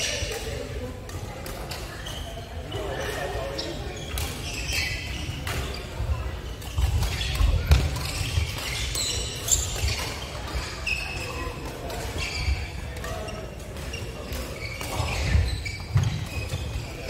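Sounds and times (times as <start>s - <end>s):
shoes thudding and squeaking: 1.9s - 17.0s
racket hitting shuttlecock: 6.7s - 10.2s.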